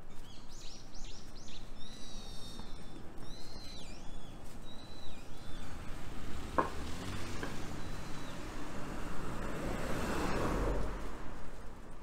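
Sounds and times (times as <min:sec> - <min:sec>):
bird chirps: 0:00.1 - 0:05.7
cars passing: 0:04.5 - 0:12.0.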